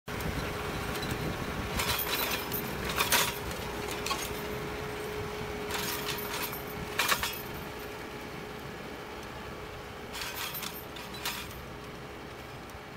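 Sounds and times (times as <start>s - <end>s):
tractor running: 0.1s - 12.9s
hoe discs cutting soil: 0.2s - 7.8s, 10.1s - 11.7s
metallic clinking and rattling: 1.0s - 8.0s, 10.1s - 11.7s.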